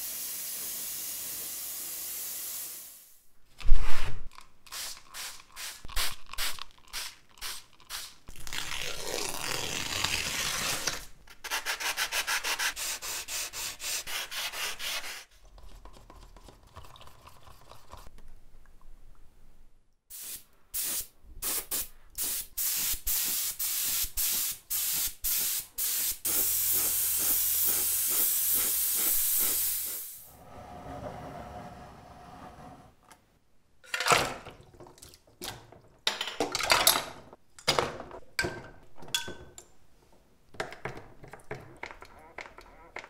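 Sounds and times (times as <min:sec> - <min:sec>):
spray gun spraying paint: 0:00.0 - 0:03.1, 0:20.1 - 0:30.3
hand sanding with sandpaper: 0:11.4 - 0:15.3.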